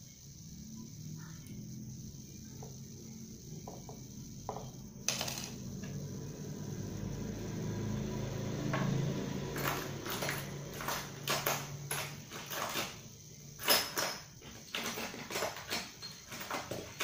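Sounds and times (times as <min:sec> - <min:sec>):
steady low hum: 0:00.0 - 0:13.6
knock on wooden workbench: 0:03.6 - 0:04.7
tools clattering and rustling: 0:09.5 - 0:17.0.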